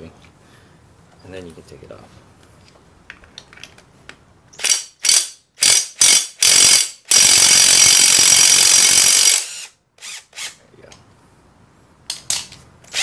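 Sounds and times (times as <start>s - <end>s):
cordless impact driver hammering: 4.6s - 9.7s.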